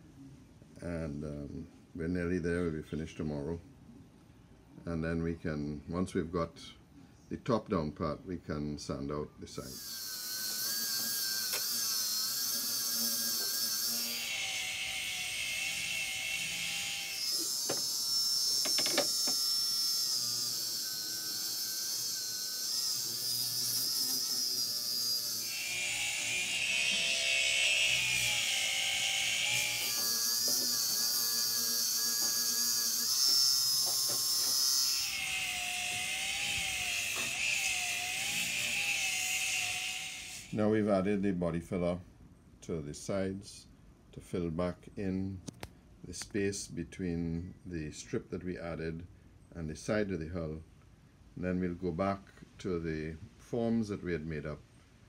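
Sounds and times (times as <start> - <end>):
electric sander whine: 9.7 - 40.6.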